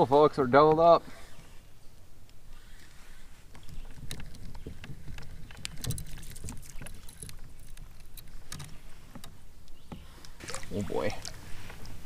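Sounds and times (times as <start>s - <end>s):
fishing tackle clicks and knocks: 3.5s - 10.3s.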